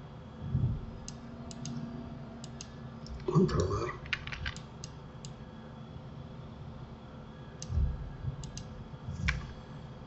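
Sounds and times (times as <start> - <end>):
keyboard and mouse clicks: 2.4 - 5.4, 8.4 - 9.6.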